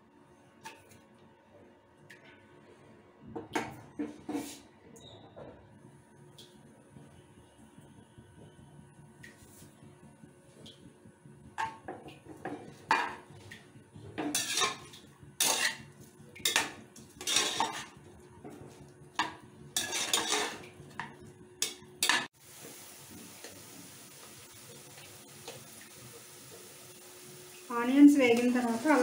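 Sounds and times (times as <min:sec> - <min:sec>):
onions frying in oil: 0:11.5 - 0:29.0
spatula scraping a metal pot: 0:14.3 - 0:14.8, 0:15.4 - 0:15.9, 0:17.2 - 0:18.0, 0:19.8 - 0:20.6.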